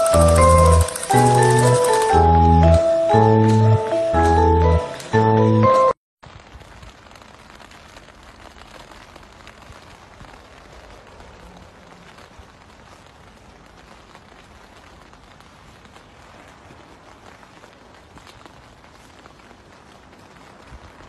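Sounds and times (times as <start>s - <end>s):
faint outdoor hiss: 6.2s - 21.0s.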